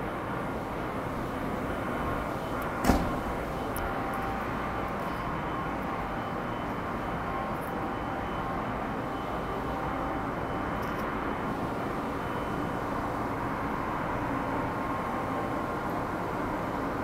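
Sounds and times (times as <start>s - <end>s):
mechanical rumble and hum: 0.0s - 8.9s.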